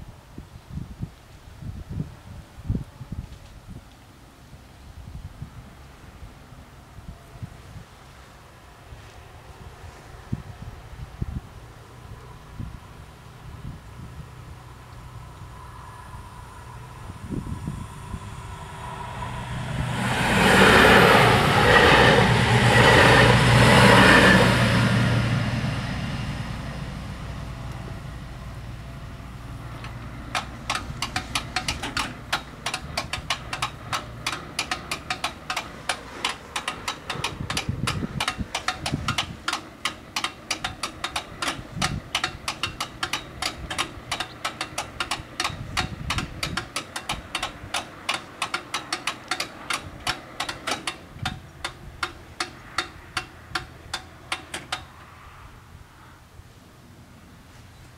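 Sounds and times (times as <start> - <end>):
train passing: 14.2 - 57.5.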